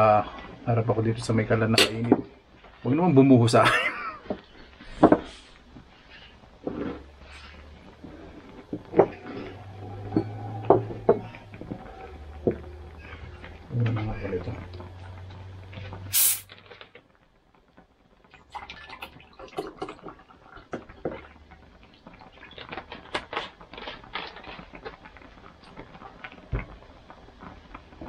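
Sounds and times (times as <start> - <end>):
cola pouring and fizzing: 3.5 - 17.1, 17.8 - 28.0
hiss of escaping gas: 16.1 - 16.5.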